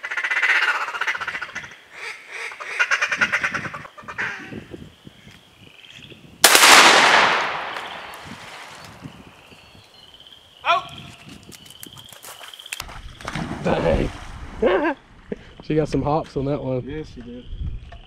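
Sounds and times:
duck call quacks: 0.0 - 4.5
shotgun blast: 6.4 - 8.2.

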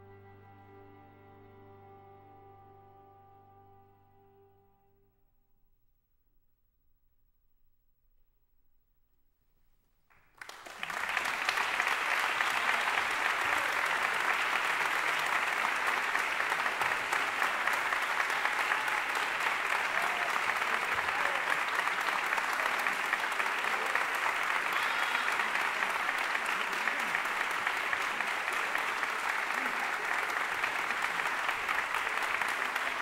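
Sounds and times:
audience applause: 10.3 - 33.0.

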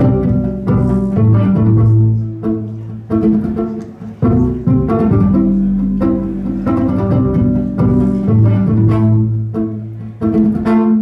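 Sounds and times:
sustained low violin tones: 0.0 - 11.0
violin pizzicato notes: 0.0 - 11.0.

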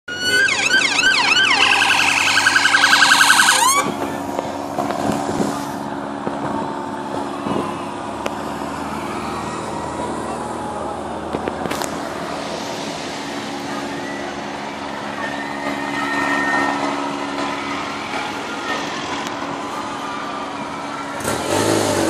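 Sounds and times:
siren wailing and yelping: 0.1 - 4.0
vehicle engines and road noise: 0.1 - 22.0.

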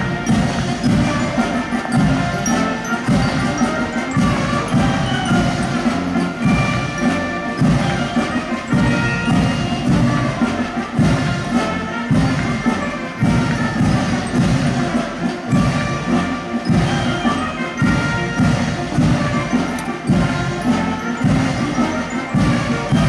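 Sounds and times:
band music with low beat: 0.0 - 23.0.

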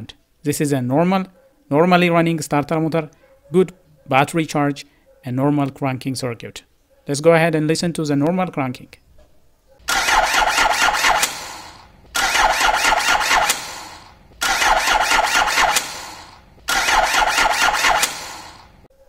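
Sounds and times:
starter motor cranking engine: 9.8 - 18.9.

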